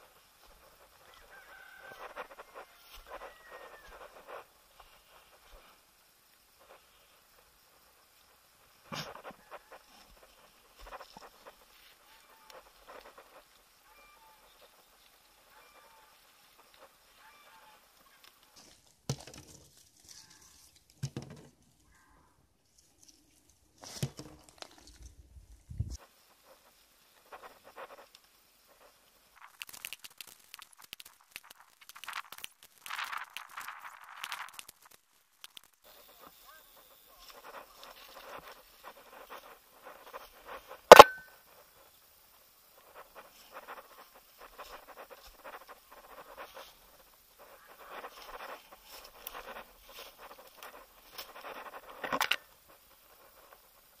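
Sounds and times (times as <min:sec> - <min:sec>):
rustling in dry leaves: 0:00.0 - 0:21.0, 0:22.6 - 0:40.8, 0:41.7 - 0:54.0
nuts clicking into basket: 0:29.4 - 0:35.8.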